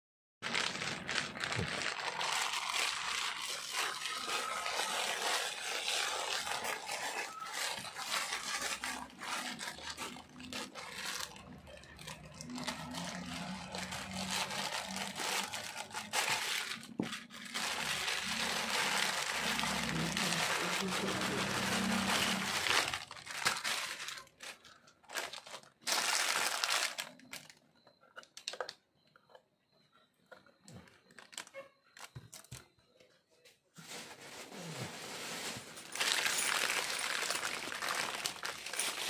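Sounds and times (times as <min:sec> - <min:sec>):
plastic bag crinkling: 0:00.4 - 0:27.6, 0:33.8 - 0:39.0
scissors cutting plastic: 0:01.0 - 0:28.8.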